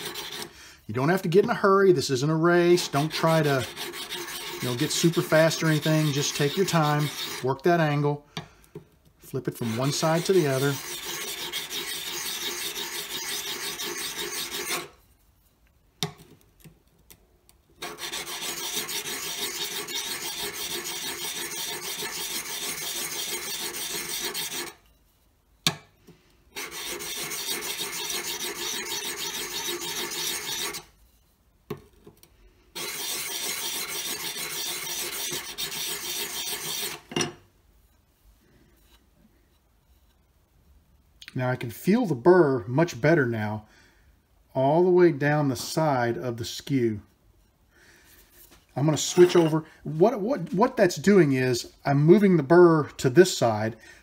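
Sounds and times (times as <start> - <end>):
chisel scraping on metal file: 0.0 - 0.5, 2.7 - 7.6, 9.5 - 15.0, 17.8 - 24.8, 26.6 - 30.9, 32.8 - 37.1, 48.4 - 49.6.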